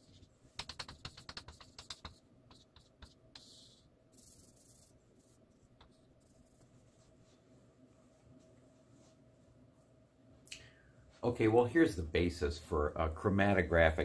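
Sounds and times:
chalk tapping on blackboard: 0.0 - 4.9
chalk scratching on blackboard: 0.0 - 6.7.

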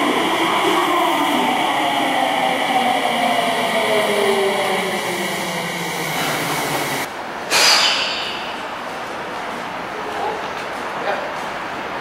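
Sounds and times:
train rumble: 0.0 - 7.1.

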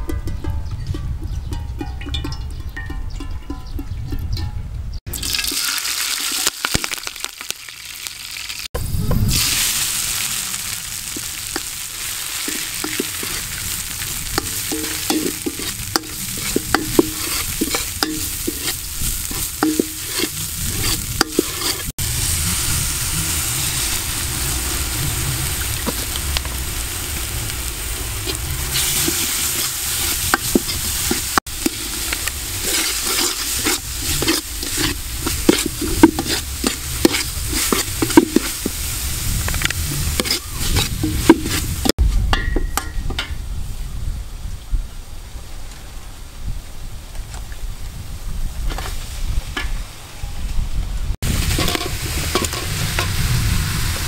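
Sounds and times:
herbs sizzling in hot oil: 5.1 - 42.0, 51.2 - 54.0
metal spatula scraping pan: 12.4 - 21.9, 28.3 - 38.9, 39.6 - 41.9, 51.3 - 53.2.

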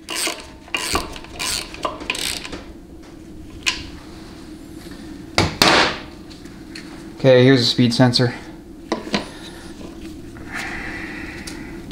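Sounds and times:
hand ratchet clicking: 0.0 - 2.6.

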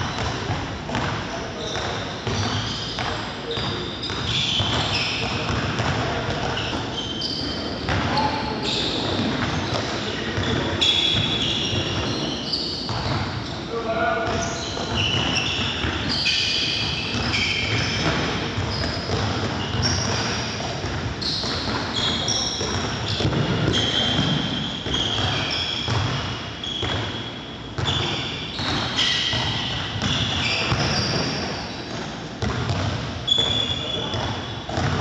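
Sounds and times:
shoes squeaking on court: 0.0 - 35.0
balls bouncing on wooden floor: 16.8 - 27.1, 27.8 - 35.0.

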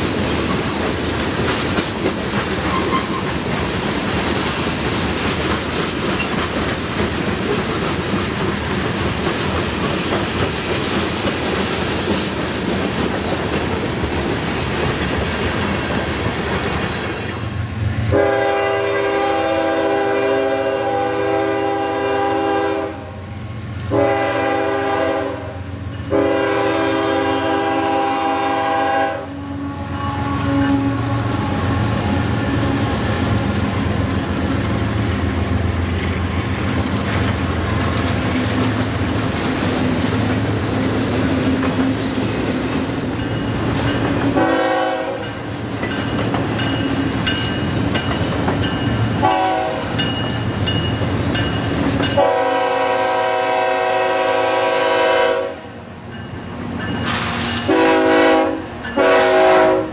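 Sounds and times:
train wheels rumbling and clattering: 0.0 - 22.6, 23.4 - 59.9
locomotive air horn blasts: 18.1 - 23.2, 23.9 - 33.6, 44.4 - 45.3, 49.2 - 50.0, 52.2 - 55.8, 57.1 - 59.9.

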